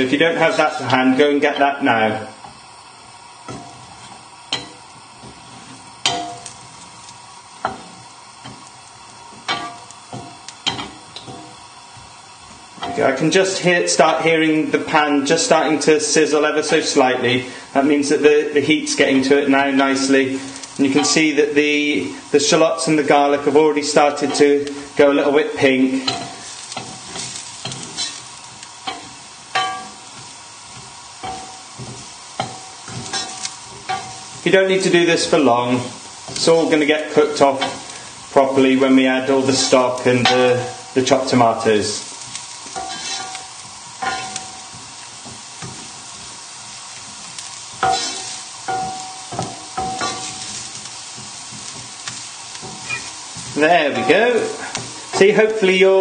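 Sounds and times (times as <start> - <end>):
faint sizzle: 0.0 - 56.0
spoon scraping and knocking pan: 3.4 - 6.8, 7.6 - 12.1, 25.8 - 34.5, 36.1 - 41.3, 42.2 - 55.3
wooden spoon knocking pan: 47.8 - 50.5.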